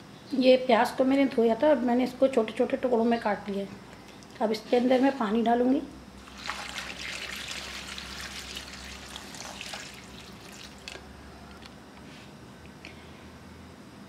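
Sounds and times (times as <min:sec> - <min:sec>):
water pouring into a pot: 0:06.2 - 0:11.0.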